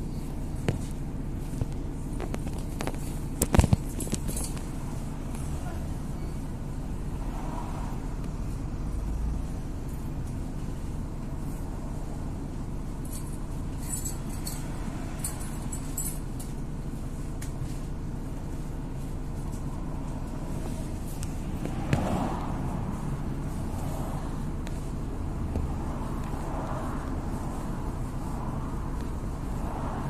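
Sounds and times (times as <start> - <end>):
bus engine and road drone: 0.0 - 30.0
light clinking rattles: 0.6 - 6.5, 9.8 - 17.8.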